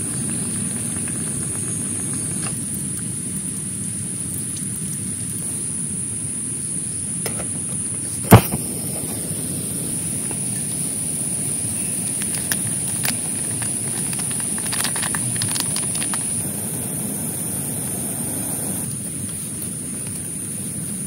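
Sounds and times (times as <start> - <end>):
high hiss: 0.0 - 4.5, 5.3 - 21.0
heavy rain on a tent: 0.0 - 5.6, 10.0 - 16.7.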